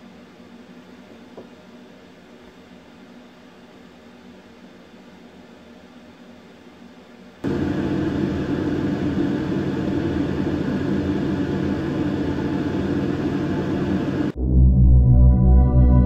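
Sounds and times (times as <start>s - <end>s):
mechanical drone with low hum: 7.4s - 16.0s.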